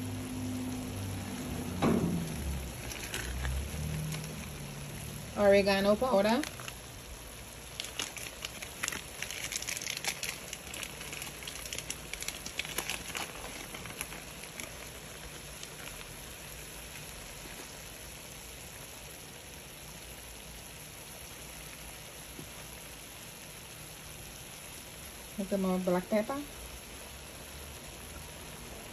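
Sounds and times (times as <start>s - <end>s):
chicken sizzling in oil: 0.0s - 28.9s
crackling pops: 1.7s - 4.8s, 6.0s - 17.9s.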